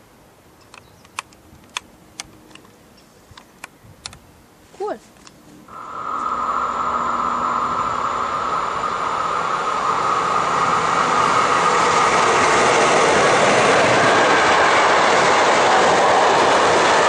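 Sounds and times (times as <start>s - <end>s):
steady high tone: 5.7s - 16.8s
train wheels rumbling on rails: 6.2s - 17.0s.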